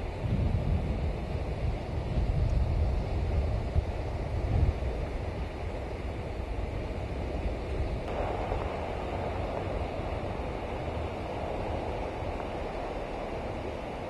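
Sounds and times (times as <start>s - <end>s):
surf washing on beach: 0.0s - 14.0s
wind on microphone: 0.0s - 14.0s
low rumble: 8.1s - 14.0s.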